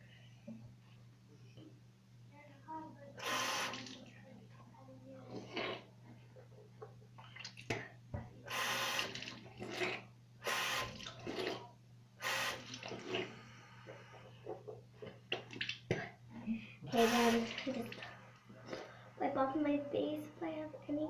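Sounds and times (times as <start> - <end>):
steady low hum: 0.0 - 21.0
water splashing in sink: 3.2 - 4.1, 7.2 - 7.9, 8.5 - 10.1, 10.7 - 11.7, 12.5 - 13.3, 15.3 - 16.2, 16.9 - 18.2.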